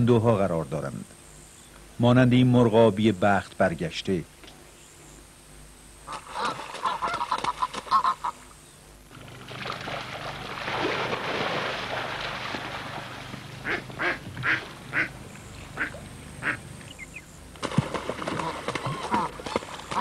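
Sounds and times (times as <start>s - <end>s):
duck quacking: 6.1s - 8.4s, 13.6s - 17.2s, 18.3s - 20.0s
water splashing: 9.1s - 20.0s.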